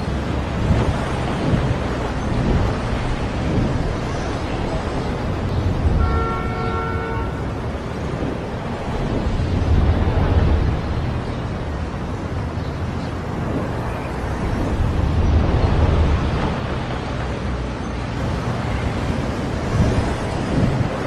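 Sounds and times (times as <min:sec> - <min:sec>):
wind noise with deep rumble: 0:00.0 - 0:21.0
horn honking: 0:05.9 - 0:07.6.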